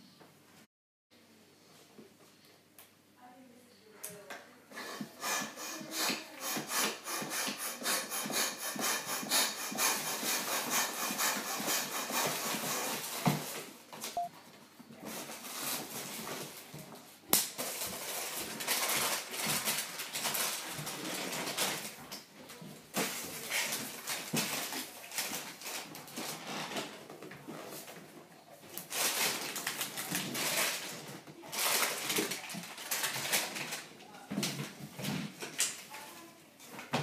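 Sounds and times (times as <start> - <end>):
hand air pump hissing: 4.7 - 13.2
hands rubbing on balloon: 4.7 - 13.2.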